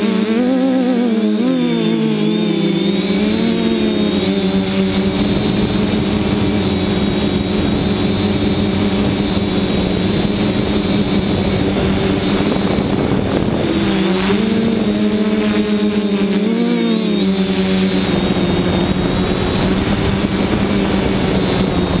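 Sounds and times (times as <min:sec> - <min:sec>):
drone motors and propellers whining: 0:00.0 - 0:22.0.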